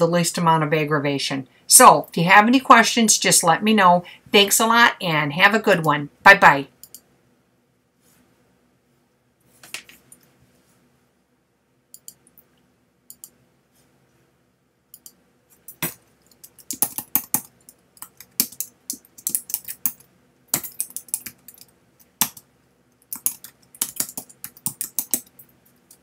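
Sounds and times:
typing on computer keyboard: 14.9 - 22.4, 23.0 - 26.0.

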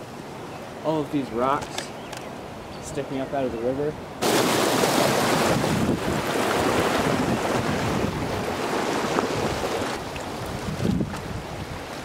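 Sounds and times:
river water rushing over rocks: 4.1 - 12.0.

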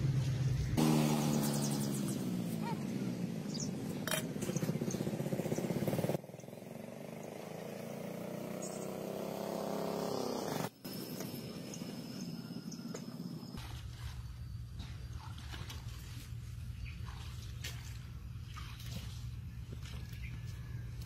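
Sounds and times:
faint engine rising in pitch: 0.0 - 15.0
motor engine running: 0.0 - 15.0.

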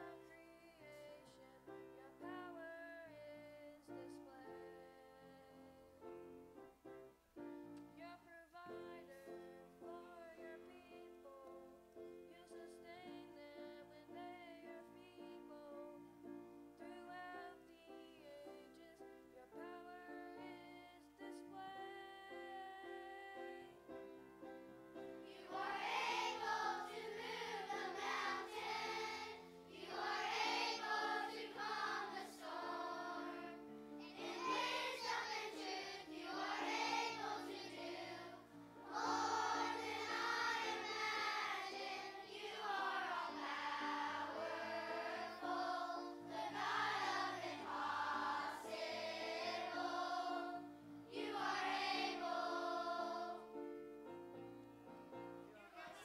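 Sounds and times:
children's choir singing: 0.0 - 5.6, 25.0 - 53.7
child singing softly: 0.0 - 6.4, 8.0 - 24.2, 25.0 - 53.6.

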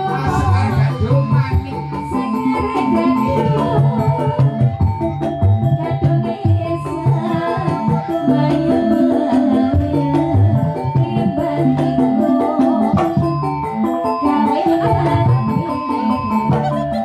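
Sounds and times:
person singing: 0.0 - 13.5, 14.2 - 17.0
drums: 0.0 - 17.0
electronic keyboard: 0.0 - 17.0
pitched percussion: 0.0 - 17.0.

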